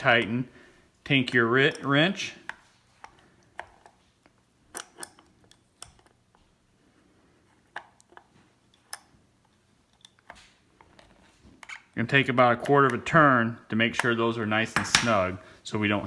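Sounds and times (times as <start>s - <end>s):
wrench clicking on metal: 4.7s - 6.2s.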